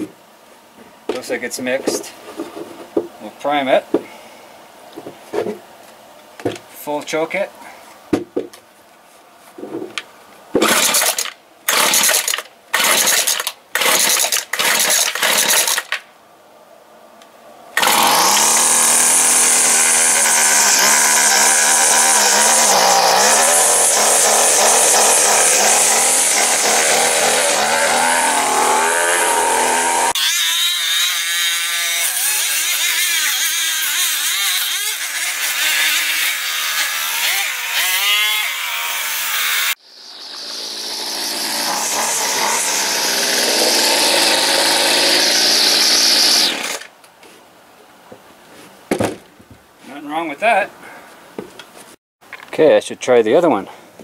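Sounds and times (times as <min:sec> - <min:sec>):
string trimmer engine running: 0:10.6 - 0:16.0, 0:17.8 - 0:30.2, 0:40.2 - 0:46.8.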